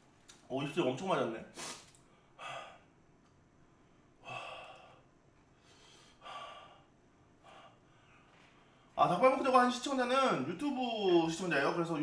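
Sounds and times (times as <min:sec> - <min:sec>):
man breathing out hard: 0:04.2 - 0:08.2.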